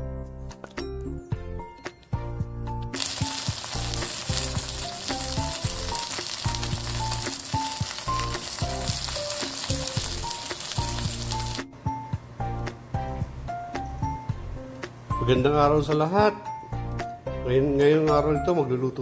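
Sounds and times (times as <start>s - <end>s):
slow background melody: 0.0s - 19.0s
fish frying in hot oil: 3.0s - 11.6s.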